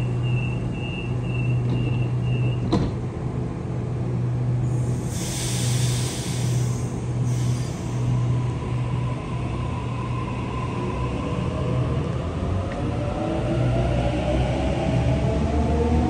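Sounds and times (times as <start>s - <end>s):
electric train humming: 0.0s - 16.0s
air hiss burst: 4.9s - 8.1s.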